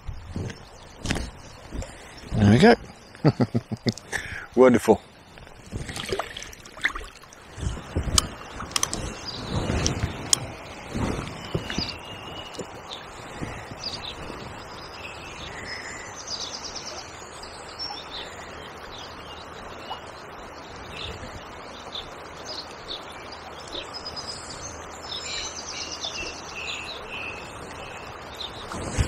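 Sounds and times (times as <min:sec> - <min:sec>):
small birds singing: 0:00.0 - 0:29.0
river water rushing: 0:04.0 - 0:29.0.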